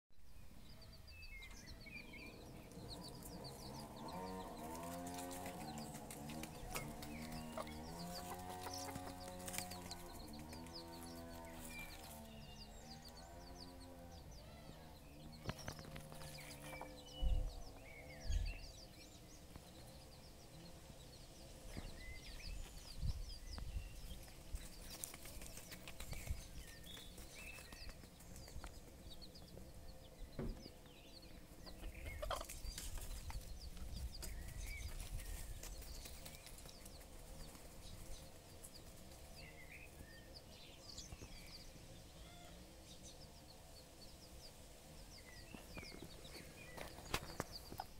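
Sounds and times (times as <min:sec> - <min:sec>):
chicks peeping: 0:00.3 - 0:47.9
hen clucking softly: 0:31.7 - 0:32.6.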